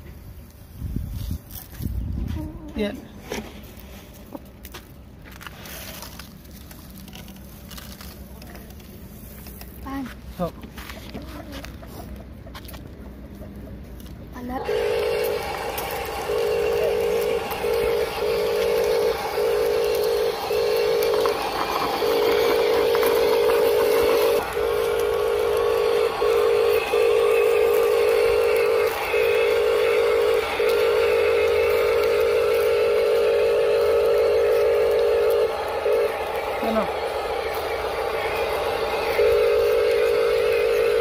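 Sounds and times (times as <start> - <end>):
electric motor whine: 14.4 - 41.0.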